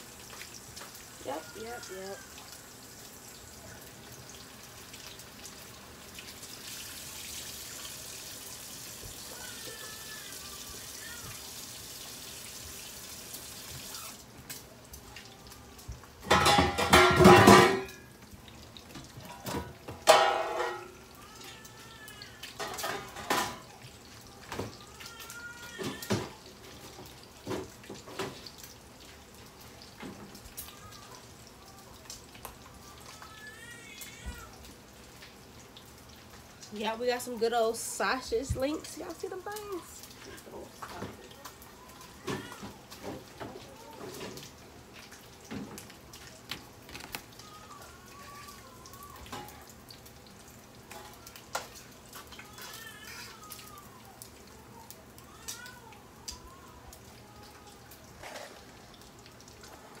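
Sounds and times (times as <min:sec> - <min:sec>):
kitchen tap running: 0:00.0 - 1:00.0
pots and dishes clattering: 0:16.2 - 0:18.2, 0:18.9 - 0:21.1, 0:22.6 - 0:23.8.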